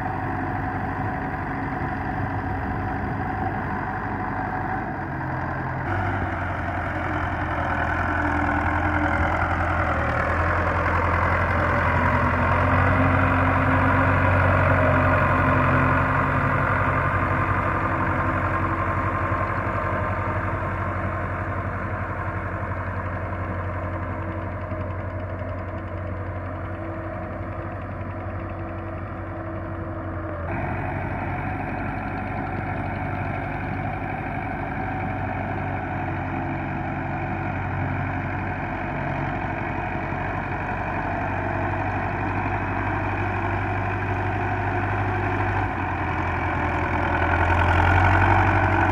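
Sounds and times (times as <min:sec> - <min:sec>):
tractor diesel engine running: 0:00.0 - 0:48.9.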